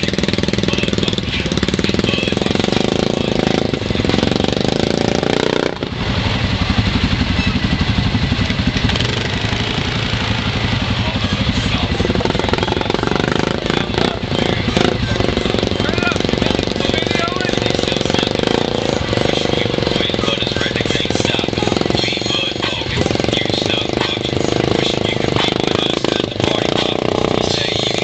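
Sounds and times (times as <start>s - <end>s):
quad bike engine running: 0.0s - 28.0s.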